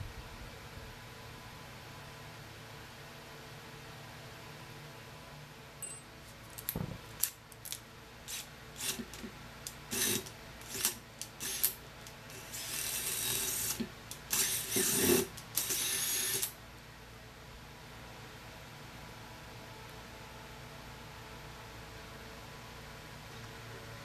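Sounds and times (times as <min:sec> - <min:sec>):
cordless drill drilling into steel: 0:08.3 - 0:16.5.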